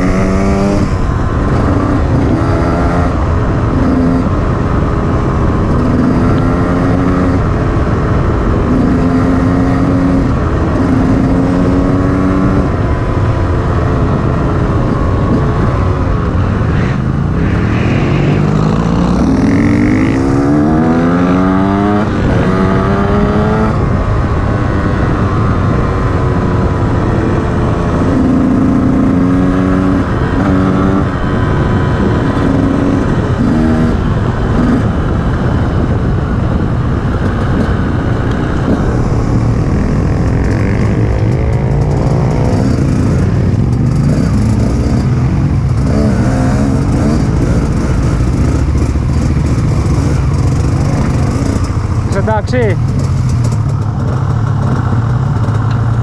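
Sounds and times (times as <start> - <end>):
two-stroke motorcycle engine revving: 0.0 - 56.0
wind and tyre noise: 0.0 - 56.0.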